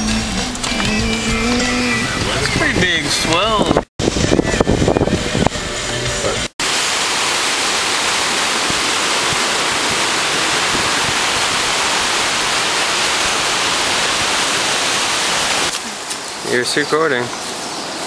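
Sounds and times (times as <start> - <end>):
ocean surf on rocks: 6.6 - 18.0.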